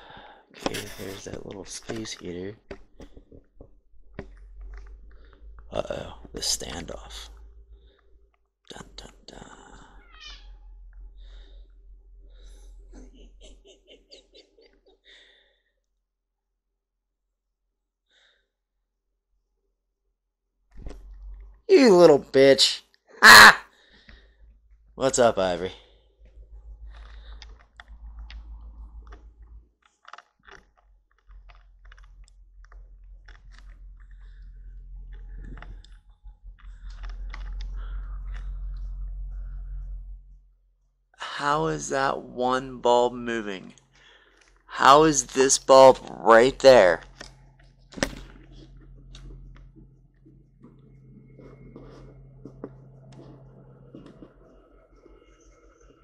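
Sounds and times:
steady low hum: 0.0 - 14.4, 24.0 - 29.7, 31.4 - 56.0
low rumble: 2.9 - 13.4, 24.3 - 29.7, 31.8 - 40.7, 47.0 - 56.0.

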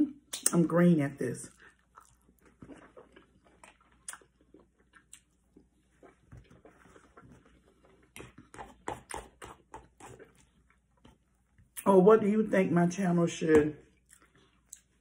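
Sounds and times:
chewing and mouth sounds: 1.5 - 11.8, 14.0 - 15.0.

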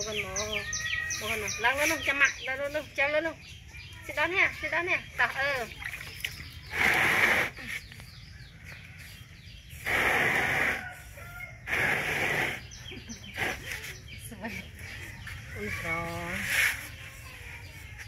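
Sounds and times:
chickens calling harshly: 9.6 - 15.8.

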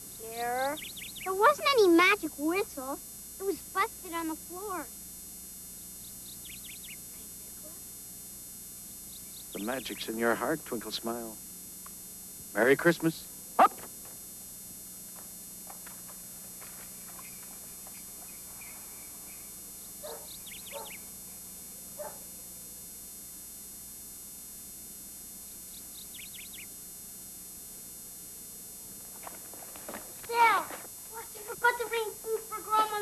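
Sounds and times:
mains hum: 0.0 - 33.0
faint animal calls: 17.0 - 21.2.

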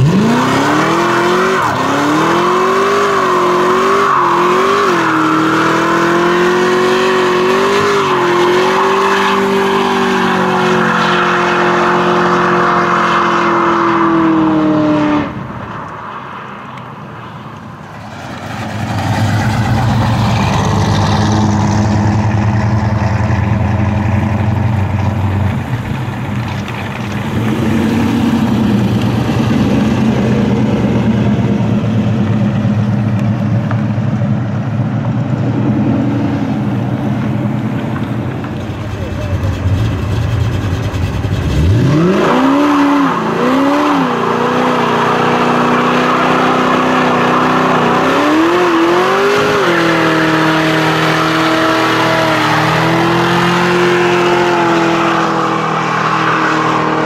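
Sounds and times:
car engine revving high: 0.0 - 15.4, 38.9 - 57.0
low car engine rumble: 16.8 - 42.2.

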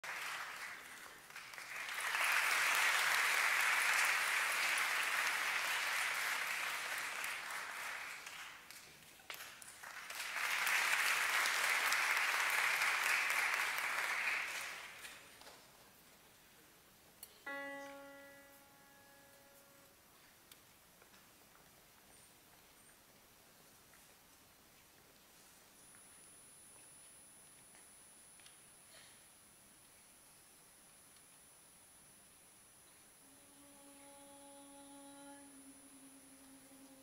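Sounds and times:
audience applause: 0.0 - 15.4
piano note ringing: 17.4 - 20.1.

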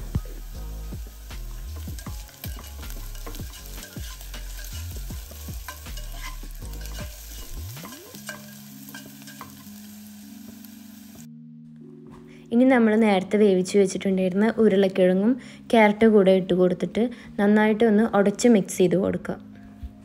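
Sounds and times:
vegetables sizzling in a pan: 0.0 - 11.3
spatula scraping a pan: 1.6 - 9.9.

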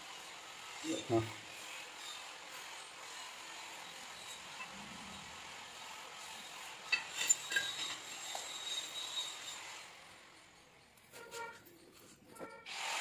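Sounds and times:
metal clinking on marble: 3.7 - 5.4, 6.2 - 9.9.

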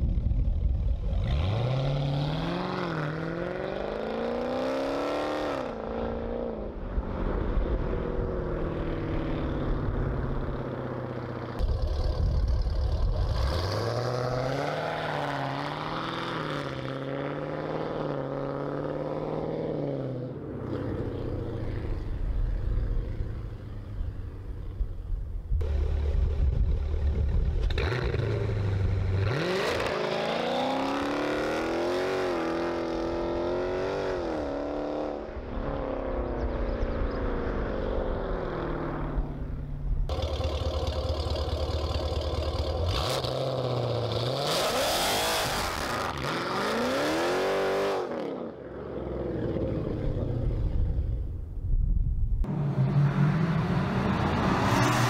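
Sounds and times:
car engine idling: 40.1 - 43.1.

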